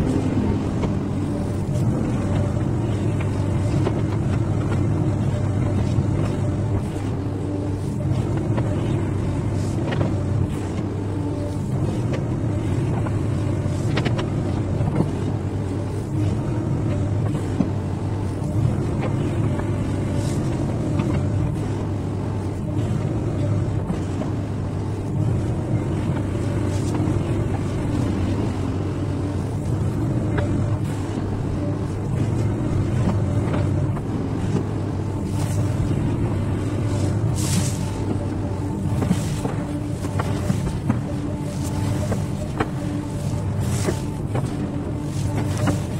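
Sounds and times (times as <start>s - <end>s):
excavator diesel engine running: 0.0s - 45.9s.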